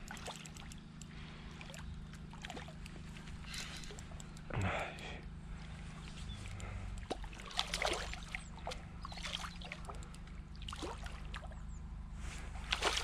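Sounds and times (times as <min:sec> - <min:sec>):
fish splashing in water: 0:00.0 - 0:00.8, 0:01.6 - 0:02.8, 0:06.6 - 0:11.6, 0:12.6 - 0:13.0.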